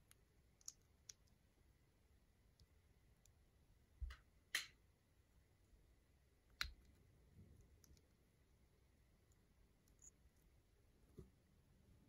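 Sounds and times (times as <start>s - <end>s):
small ticks of pieces handled: 0.0s - 1.4s.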